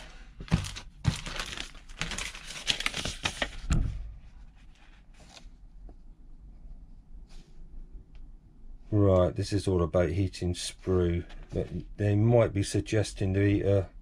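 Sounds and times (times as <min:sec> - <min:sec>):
plastic bag and paper crinkling: 0:00.0 - 0:03.8.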